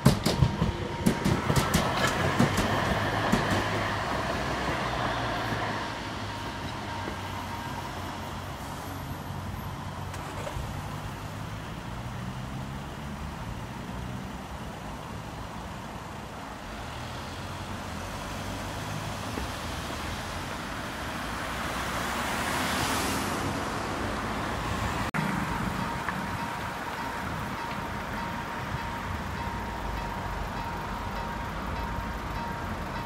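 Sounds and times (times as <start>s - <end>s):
level crossing warning signal ringing: 0.0s - 10.0s, 25.2s - 33.0s
car engines idling: 24.0s - 33.0s.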